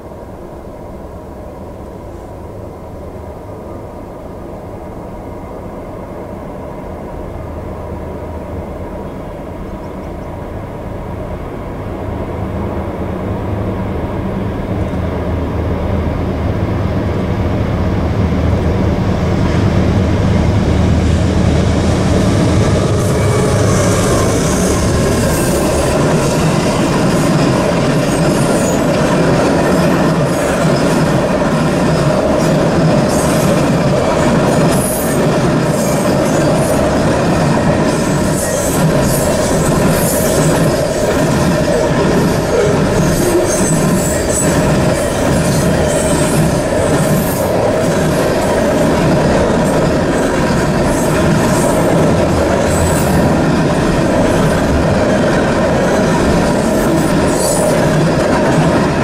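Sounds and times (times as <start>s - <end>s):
diesel locomotive drone: 0.0s - 59.0s
train wheels hissing on rails: 19.4s - 59.0s.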